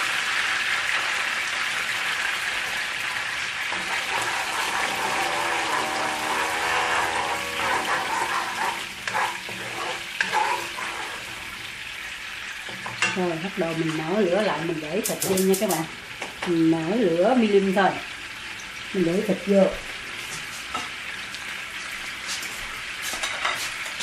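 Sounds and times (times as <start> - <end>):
sugar sizzling in a wok: 0.0 - 24.0
spatula scraping knocks: 3.8 - 11.3.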